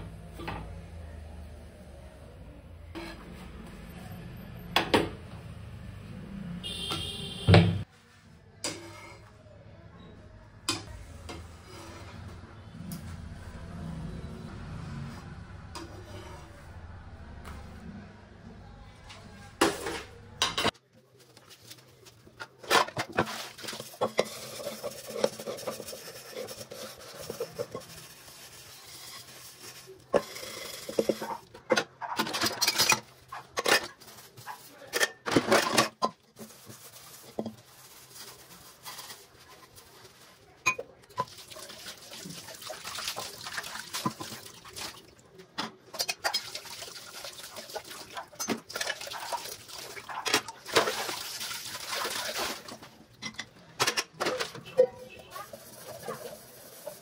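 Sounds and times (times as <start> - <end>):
metal pots clinking in sink: 22.4 - 27.9, 45.6 - 51.4, 52.2 - 56.3
sponge scrubbing: 23.2 - 30.1, 55.1 - 57.0.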